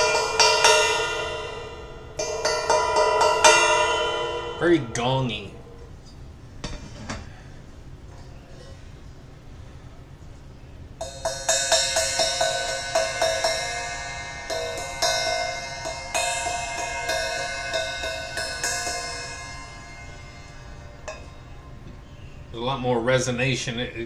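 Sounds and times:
cymbal struck and ringing: 0.0s - 6.2s, 11.0s - 22.5s.

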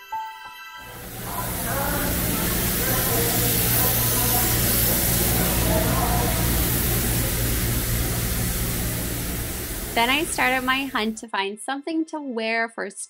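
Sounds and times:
faint voices murmuring: 0.9s - 7.8s
low hum: 0.9s - 11.2s
steady hiss: 0.9s - 11.2s.

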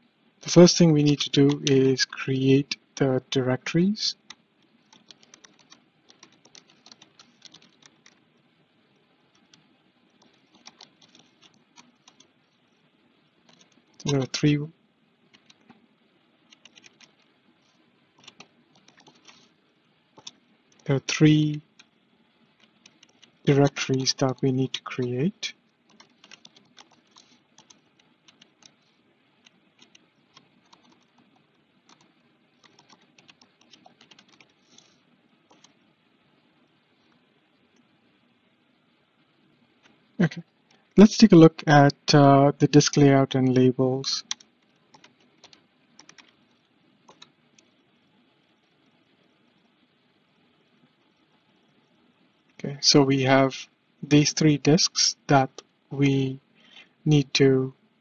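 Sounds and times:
typing on computer keyboard: 4.3s - 8.2s, 10.2s - 12.3s, 13.5s - 14.3s, 15.3s - 15.8s, 16.5s - 17.3s, 18.2s - 19.4s, 20.2s - 20.9s, 22.6s - 23.3s, 25.9s - 28.8s, 29.4s - 31.2s, 31.9s - 34.9s, 35.5s - 35.8s, 44.2s - 46.4s, 47.1s - 47.7s.

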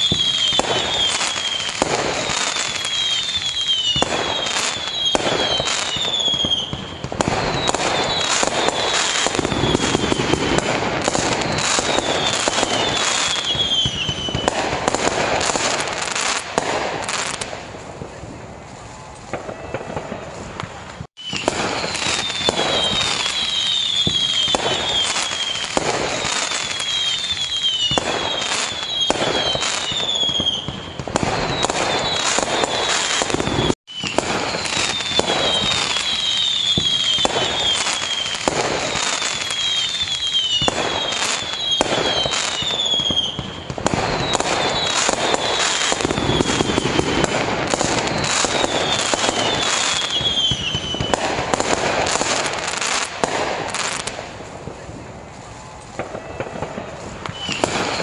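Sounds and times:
fireworks bangs and crackle: 0.0s - 58.0s
shrill falling whistles: 7.4s - 14.5s, 21.2s - 30.7s, 31.4s - 43.4s, 44.0s - 51.2s.

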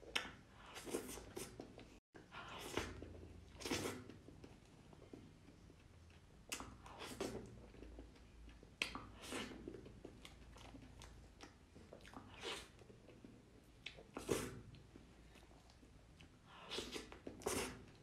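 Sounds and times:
mouth sounds eating cake: 0.0s - 18.0s.

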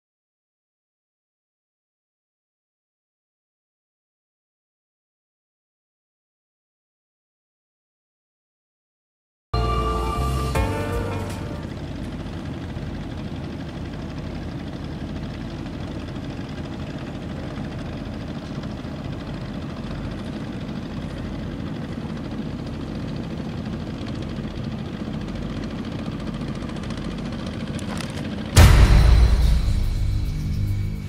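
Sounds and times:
low rumbling drone: 9.6s - 31.0s
loud boom: 28.6s - 31.0s.

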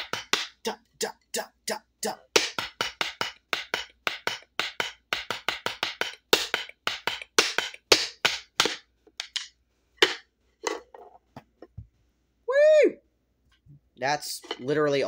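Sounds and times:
sticks knocking on pad: 2.4s - 10.2s.

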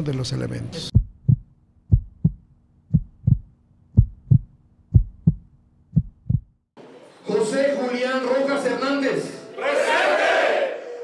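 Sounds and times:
heartbeat thumps: 0.9s - 6.7s.

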